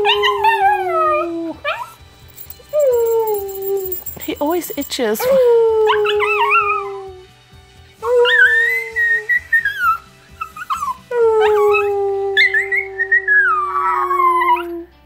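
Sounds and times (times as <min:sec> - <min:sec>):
dog howling high: 0:00.0 - 0:02.0, 0:02.7 - 0:04.2, 0:05.2 - 0:07.2, 0:08.0 - 0:10.0, 0:10.7 - 0:15.0.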